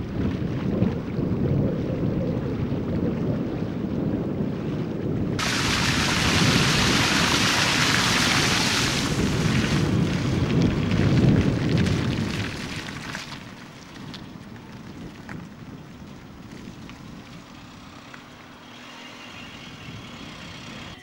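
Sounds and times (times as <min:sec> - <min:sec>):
wind rumbling on microphone: 0:00.0 - 0:21.0
rushing hiss of water: 0:05.4 - 0:09.9.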